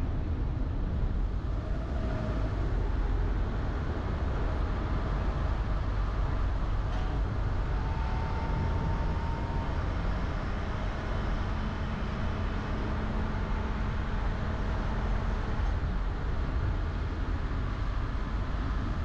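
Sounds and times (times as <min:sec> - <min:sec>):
car engine and tyre rumble: 0:00.0 - 0:19.0.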